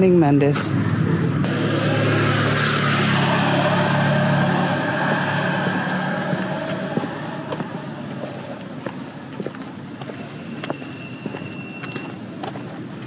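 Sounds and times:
vehicle driving past: 0.7 - 8.9.

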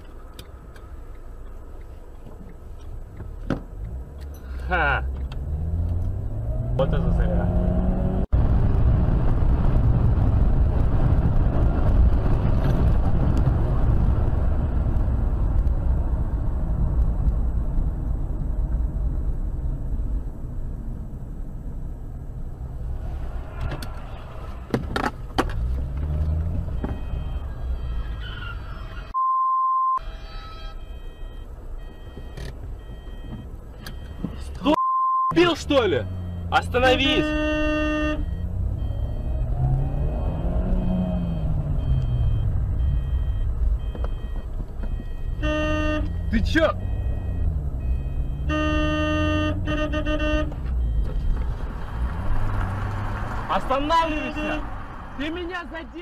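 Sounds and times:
car road and engine rumble: 0.0 - 56.0
single-tone bleep: 29.1 - 51.4.

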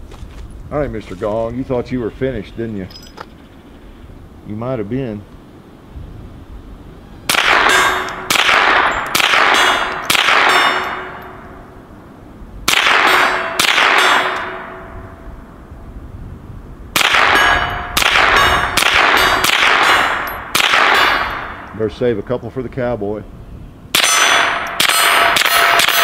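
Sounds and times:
pistol shots: 7.3 - 11.5, 12.7 - 14.8, 17.0 - 21.7, 23.9 - 26.0.

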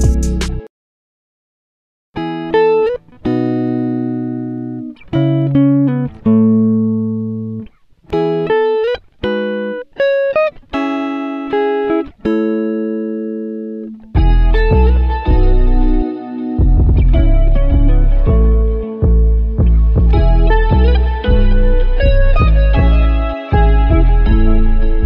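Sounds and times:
slow melodic background music: 14.2 - 25.0.

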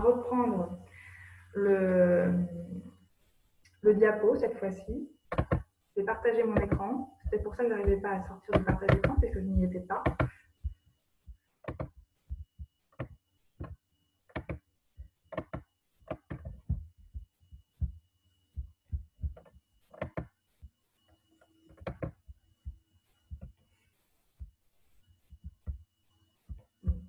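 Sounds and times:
faint electrical hum: 0.0 - 27.0
computer taps and clicks: 5.3 - 5.7, 6.6 - 10.4, 11.6 - 16.9, 19.3 - 20.4, 21.7 - 22.2.

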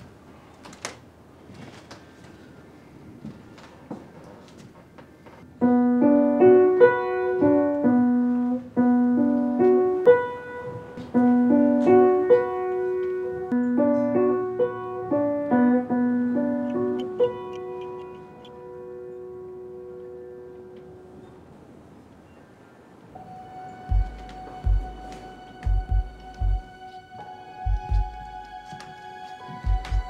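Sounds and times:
slow piano melody: 5.5 - 22.0, 23.0 - 30.0.

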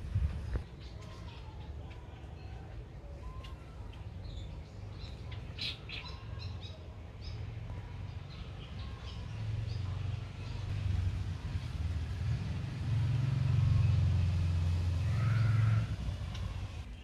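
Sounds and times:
steady low rumble: 0.0 - 0.7, 7.0 - 16.9
birds chirping: 0.0 - 17.0.

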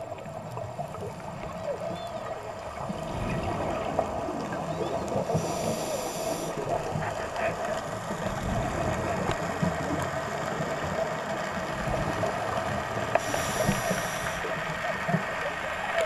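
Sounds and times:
faint clicks and crackle: 0.0 - 16.0
muffled underwater noise: 0.0 - 16.0
scuba regulator breathing hiss: 5.3 - 6.7, 13.2 - 14.6.

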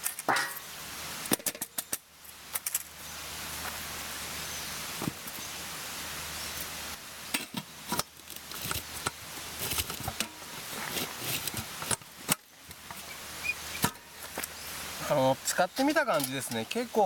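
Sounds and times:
rustling: 7.4 - 17.0.

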